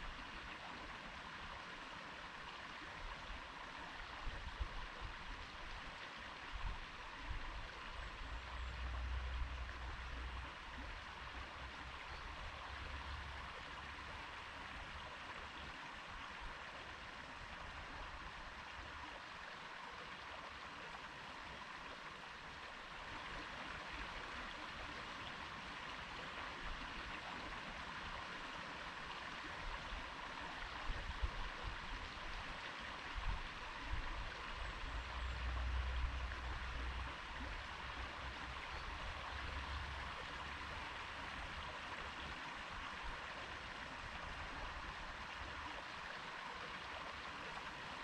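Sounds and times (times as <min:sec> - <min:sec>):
stream rushing over stones: 0:08.8 - 0:48.0.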